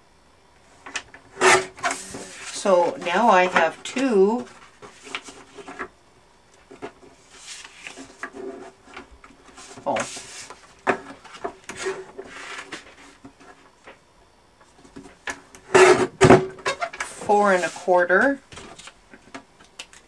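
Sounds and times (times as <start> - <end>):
paper sliding and rustling: 7.2 - 8.6, 9.5 - 10.6, 11.2 - 13.2.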